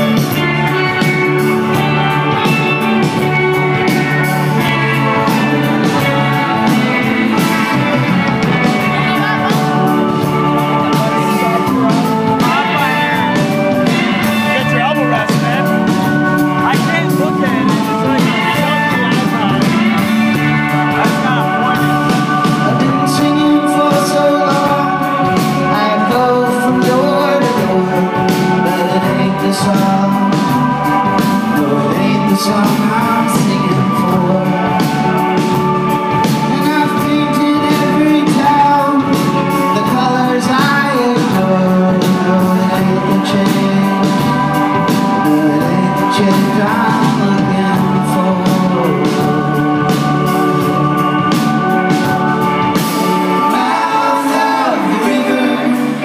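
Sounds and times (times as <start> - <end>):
person singing: 0.0 - 56.0
rock band playing live: 0.0 - 56.0
steady drum beat: 0.0 - 56.0.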